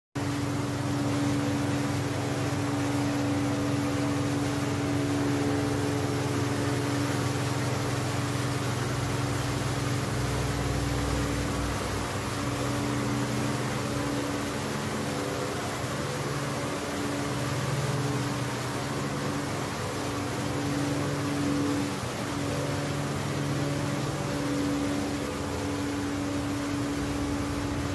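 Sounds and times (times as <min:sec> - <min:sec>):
low drone: 0:00.2 - 0:27.9
machinery hum and hiss: 0:00.2 - 0:27.9.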